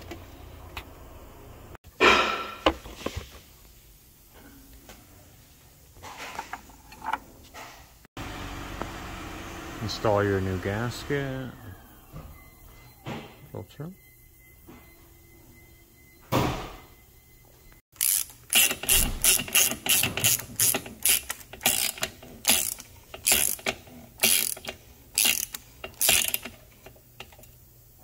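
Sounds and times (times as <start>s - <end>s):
hand ratchet clicking: 18.0s - 26.6s.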